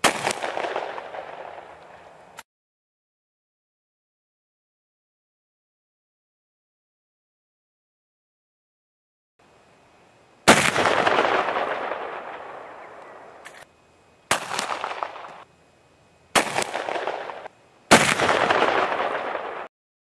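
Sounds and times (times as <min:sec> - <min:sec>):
gunshot echo: 0:00.0 - 0:02.0, 0:10.5 - 0:13.6, 0:14.3 - 0:15.4, 0:16.4 - 0:19.7
rifle shots: 0:00.0 - 0:02.0, 0:10.5 - 0:13.6, 0:14.3 - 0:15.4, 0:16.4 - 0:19.7.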